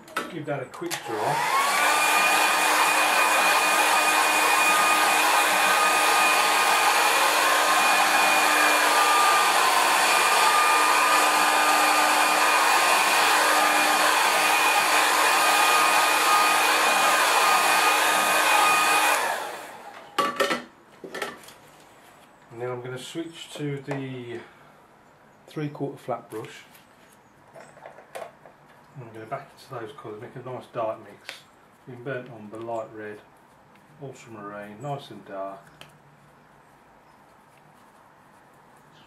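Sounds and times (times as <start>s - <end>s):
hair dryer blowing: 0.9s - 20.2s.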